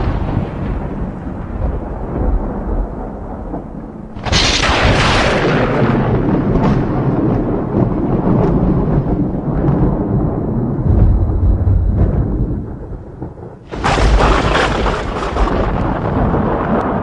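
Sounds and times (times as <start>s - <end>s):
wind buffeting microphone: 0.0s - 17.0s
scattered crackling: 4.1s - 6.9s, 11.0s - 17.0s
loud gust of wind: 4.1s - 16.6s.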